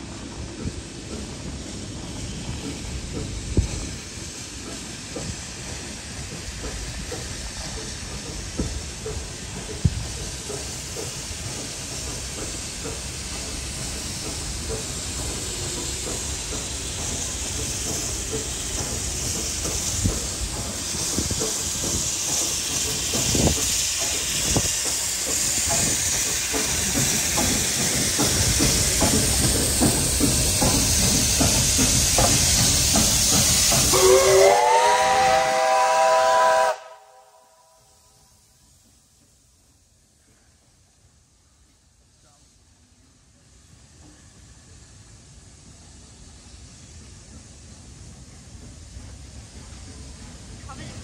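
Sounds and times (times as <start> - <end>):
steam hissing: 0.0 - 51.0
steam whistle blowing: 33.8 - 38.1.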